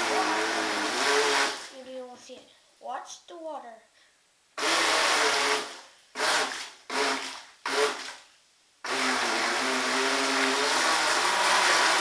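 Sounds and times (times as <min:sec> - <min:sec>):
electric boat motor revving: 0:00.0 - 0:01.7, 0:04.6 - 0:08.0, 0:08.9 - 0:12.0.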